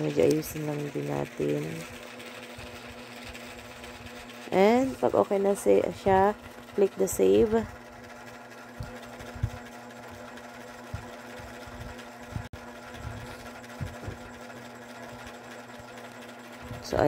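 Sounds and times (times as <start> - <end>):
steady mechanical hum: 0.0 - 17.0.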